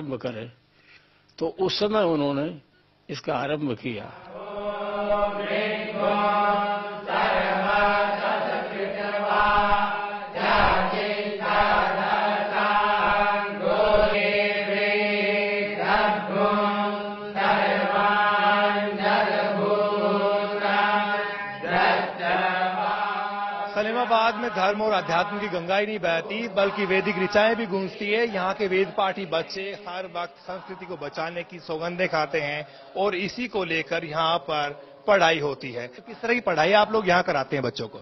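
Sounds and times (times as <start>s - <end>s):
group chanting in unison: 4.1s - 33.1s.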